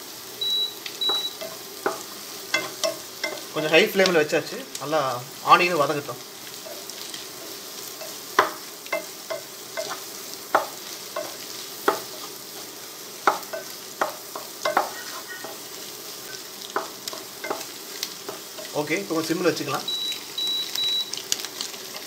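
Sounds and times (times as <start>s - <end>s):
egg and onion sizzling in oil: 0.0s - 22.0s
spatula knocking on pot: 13.2s - 15.6s.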